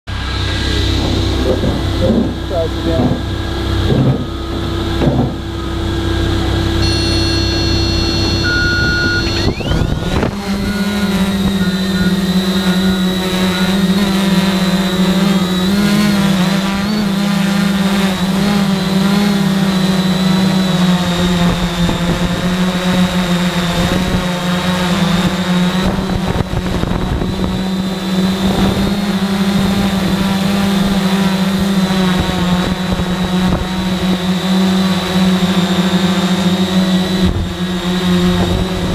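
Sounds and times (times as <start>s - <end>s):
drone motors humming: 0.1s - 38.9s
short high beeps: 6.8s - 13.9s.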